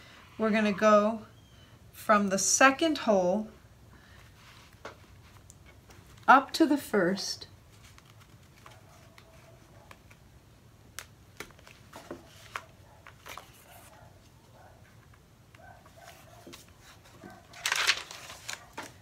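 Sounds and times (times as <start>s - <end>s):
soft paper rustles: 4.1s - 6.4s, 7.6s - 10.4s, 11.0s - 19.0s
pages being turned: 7.7s - 10.2s, 10.9s - 13.9s, 16.0s - 19.0s.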